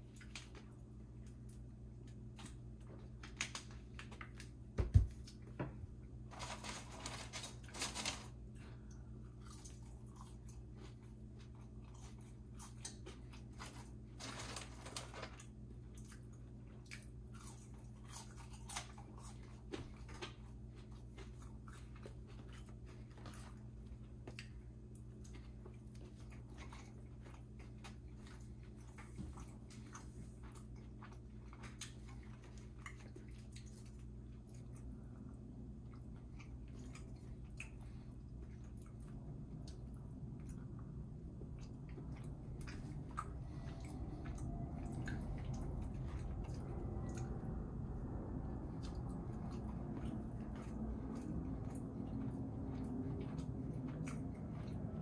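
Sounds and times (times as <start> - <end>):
person chewing and biting food: 15.9 - 55.0.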